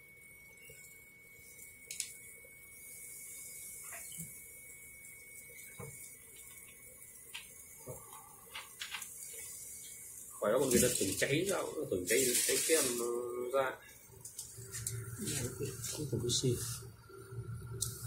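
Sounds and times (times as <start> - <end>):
fizzy liquid pouring: 5.2 - 13.3.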